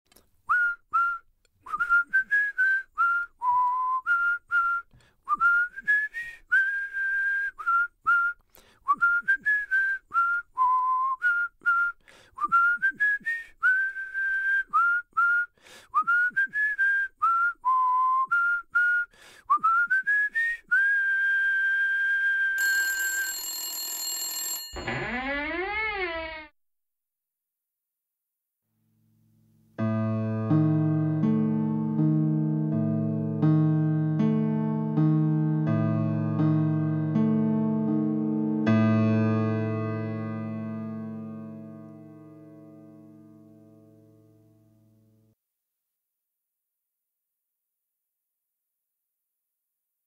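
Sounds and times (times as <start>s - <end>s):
person whistling a tune: 0.5s - 22.6s
high ringing tone: 22.6s - 26.2s
door creaking open: 24.7s - 26.6s.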